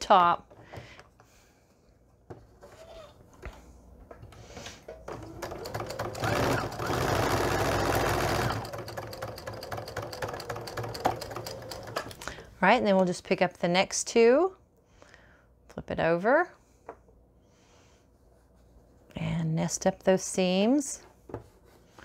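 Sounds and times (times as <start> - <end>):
sewing machine stitching: 5.1 - 12.1.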